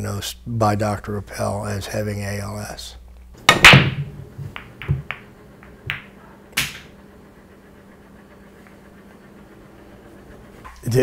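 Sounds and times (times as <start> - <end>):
billiard balls clicking: 3.4 - 7.0
cue ball smashing into racked balls: 3.4 - 7.0.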